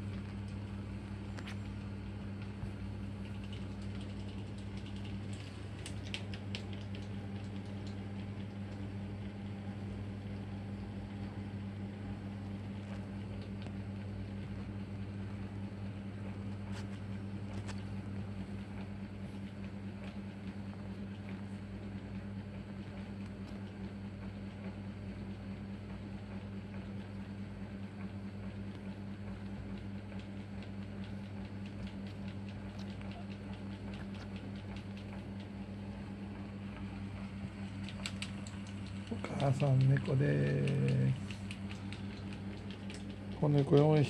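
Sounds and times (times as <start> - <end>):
steady low hum: 0.0 - 44.0.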